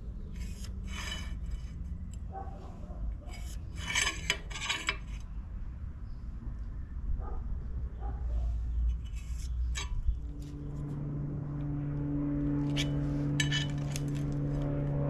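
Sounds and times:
scriber scratching steel: 0:00.0 - 0:05.4, 0:08.7 - 0:11.8, 0:12.4 - 0:14.8.

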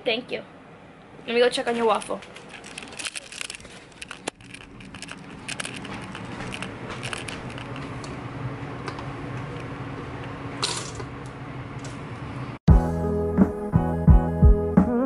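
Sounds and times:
camera handling clicks and rattles: 0:02.1 - 0:07.9.

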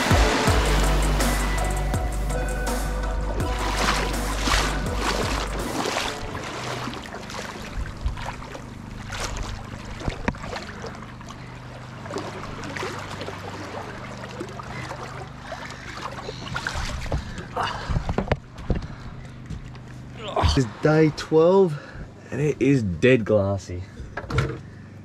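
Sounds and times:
low steady hum: 0:00.0 - 0:25.0
footsteps wading through water: 0:03.3 - 0:20.8.

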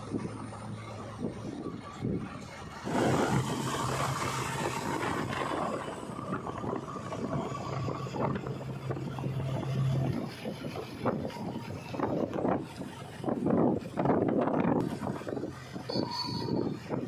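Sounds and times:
diesel engine driving past: 0:00.0 - 0:13.9.

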